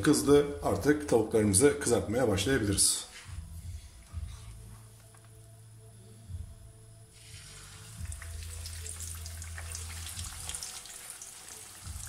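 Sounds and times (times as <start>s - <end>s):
cutlet sizzling in hot oil: 7.2s - 12.0s.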